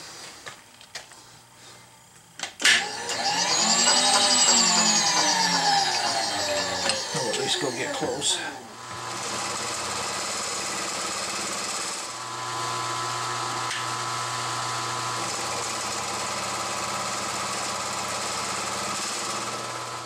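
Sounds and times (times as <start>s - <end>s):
milling machine cutting metal: 2.8s - 12.4s.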